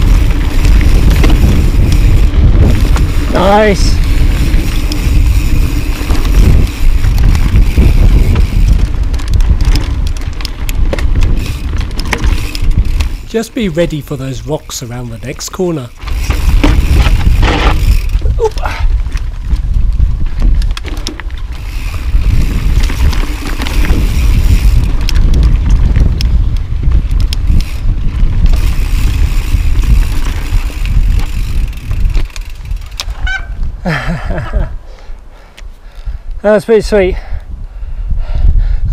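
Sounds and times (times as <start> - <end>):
sharp clicks and rattles: 0.0 - 33.3
bike rolling over dirt and rock: 0.0 - 34.6
wind buffeting microphone: 0.0 - 38.9.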